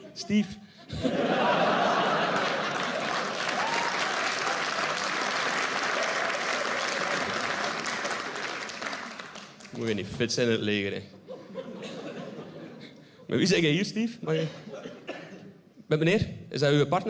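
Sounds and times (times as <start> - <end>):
audience applauding: 1.6 - 10.0.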